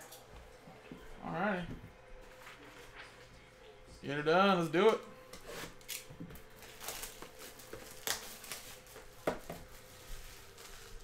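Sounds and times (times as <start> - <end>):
plastic shrink wrap crinkling: 5.7 - 11.0.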